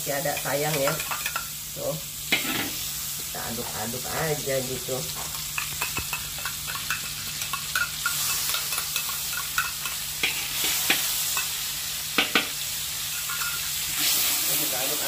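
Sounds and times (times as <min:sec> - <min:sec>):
butter sizzling in a wok: 0:00.0 - 0:15.0
metal spatula stirring: 0:00.2 - 0:01.5, 0:05.3 - 0:11.6, 0:13.2 - 0:13.7
spatula clicking against wok: 0:05.5 - 0:10.0.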